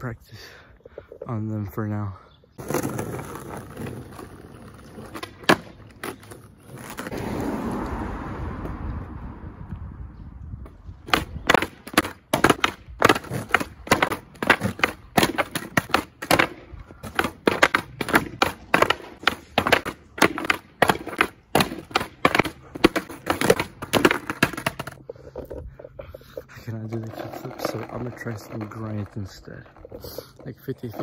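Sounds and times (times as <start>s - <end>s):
skateboard clattering on asphalt: 2.6s - 8.0s, 11.0s - 25.7s, 26.5s - 31.0s.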